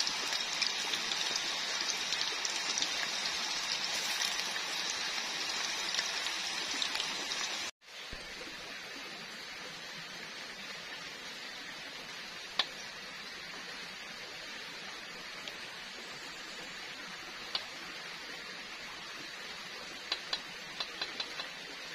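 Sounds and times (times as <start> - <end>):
food sizzling in hot oil: 0.0 - 8.0.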